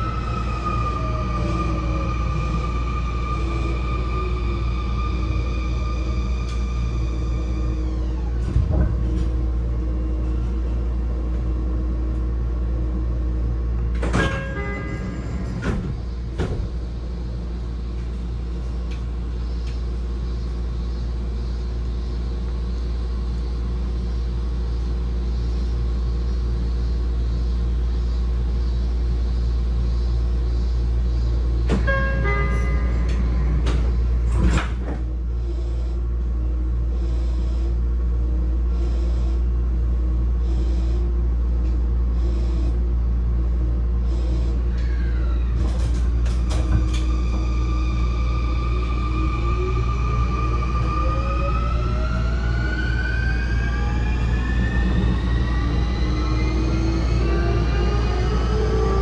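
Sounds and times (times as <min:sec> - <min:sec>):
train doors sliding: 0:00.0 - 0:12.3, 0:13.7 - 0:19.8, 0:31.4 - 0:36.0, 0:44.1 - 0:49.5
electric train hum: 0:00.0 - 0:59.0
train door chime: 0:14.0 - 0:15.9, 0:31.7 - 0:34.7.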